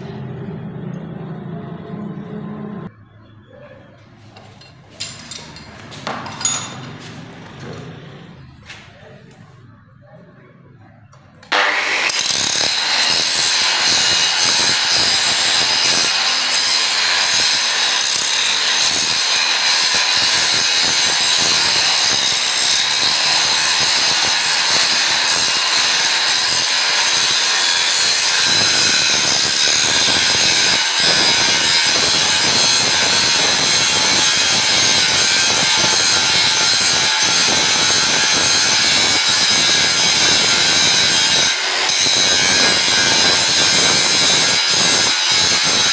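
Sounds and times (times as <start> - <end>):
angle grinder grinding steel: 11.4 - 45.9.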